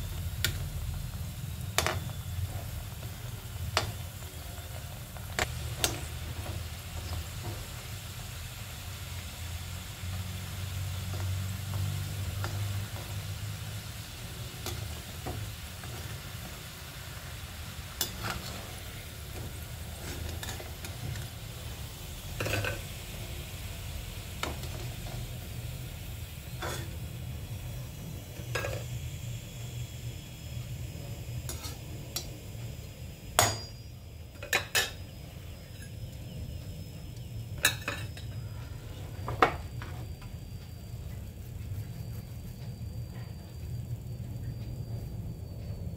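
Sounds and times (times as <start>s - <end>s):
oil sizzling: 0.0s - 42.2s
steady low hum: 0.0s - 45.9s.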